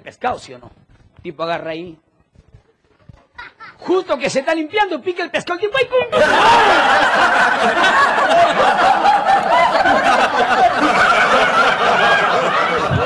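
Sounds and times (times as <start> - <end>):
crowd laughing: 6.1 - 13.0
people clapping: 6.2 - 13.0.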